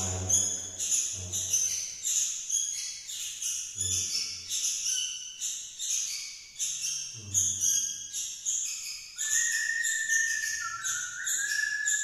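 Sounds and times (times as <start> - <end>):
low bass note: 0.0 - 1.6.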